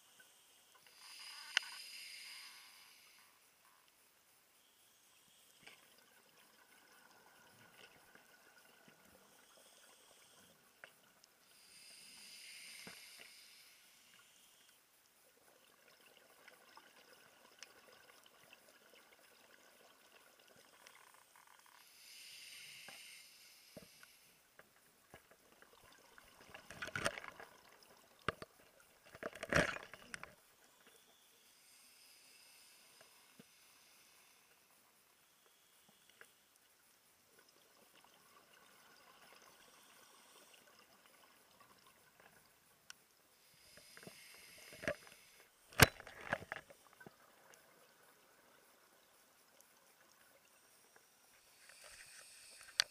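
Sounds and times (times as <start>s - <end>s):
faint underwater clicks: 0.2s - 22.0s, 22.6s - 31.3s, 32.6s - 52.9s
crackling clicks: 0.7s - 2.6s, 23.8s - 31.1s, 42.1s - 43.1s, 44.0s - 47.7s, 50.9s - 52.9s.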